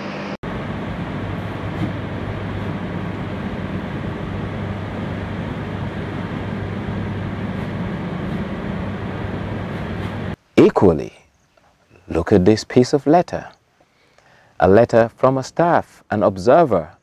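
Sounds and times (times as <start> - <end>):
factory machinery hum: 0.0 - 10.4
mechanical rush: 0.0 - 10.4.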